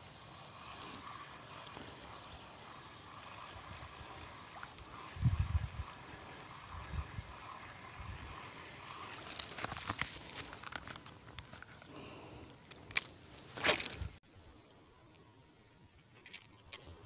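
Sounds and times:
fishing reel clicks and rattles: 0.2s - 11.9s, 16.1s - 17.0s.

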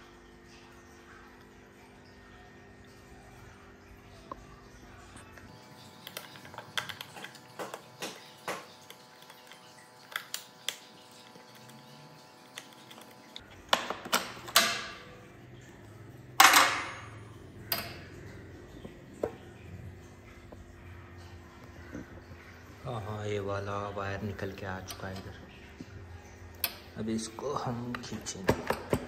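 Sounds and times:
clicks and knocks of hands working: 27.9s - 29.0s.

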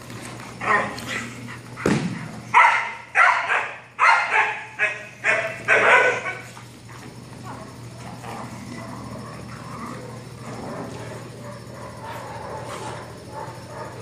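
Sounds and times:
puppy barking: 2.5s - 6.5s.

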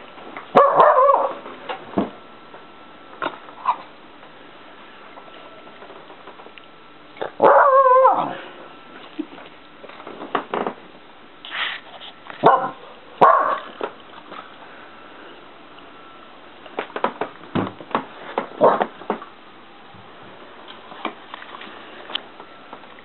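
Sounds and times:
small dog barking: 0.5s - 1.4s, 7.4s - 8.4s, 12.4s - 13.7s.

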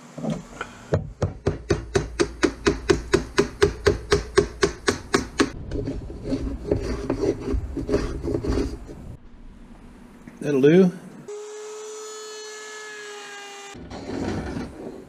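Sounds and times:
wooden mallet striking chisel: 0.9s - 5.6s
chisel scraping through wood: 4.4s - 9.0s.

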